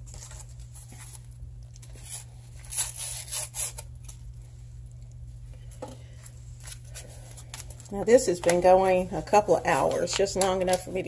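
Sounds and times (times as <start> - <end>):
steady low hum: 0.0 - 11.0
paper envelope tearing: 1.8 - 4.2.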